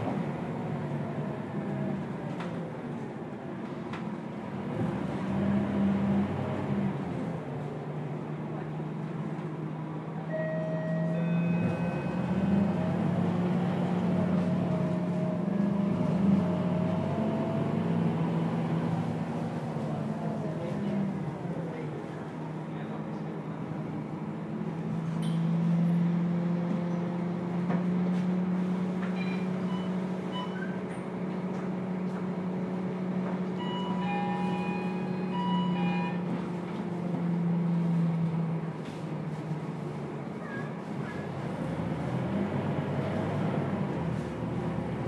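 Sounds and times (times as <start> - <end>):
bus engine drone: 0.0 - 45.0.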